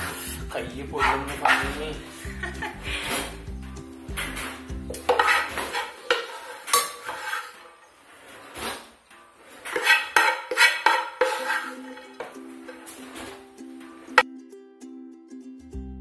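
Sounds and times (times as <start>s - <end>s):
spoon scraping rice from pan: 1.0s - 1.8s, 5.0s - 12.1s.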